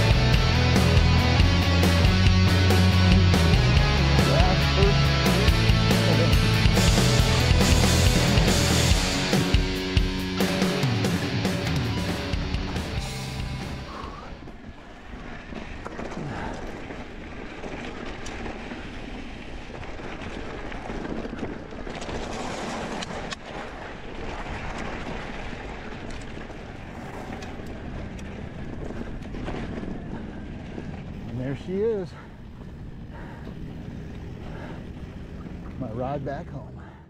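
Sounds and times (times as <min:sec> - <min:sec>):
tyres on gravel: 0:00.0 - 0:36.7
stones and bike rattling: 0:11.7 - 0:36.7
wind rushing over microphone: 0:13.8 - 0:35.6.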